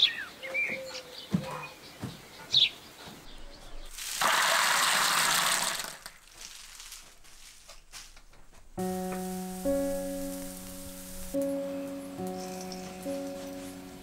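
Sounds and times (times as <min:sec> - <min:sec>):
dried beans pouring rattle: 0:03.9 - 0:07.4.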